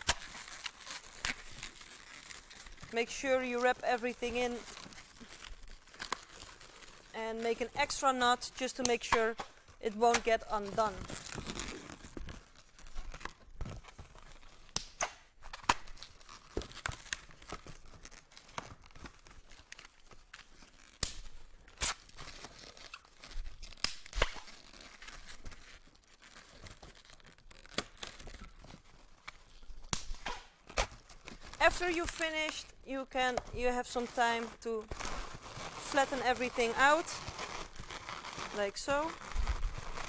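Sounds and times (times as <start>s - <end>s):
balloons rubbing and tapping: 0.0s - 14.8s, 31.3s - 40.0s.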